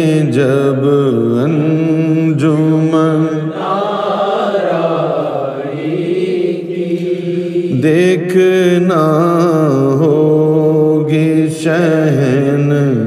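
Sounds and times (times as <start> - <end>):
man singing devotional song: 0.0 - 4.8, 6.6 - 13.0.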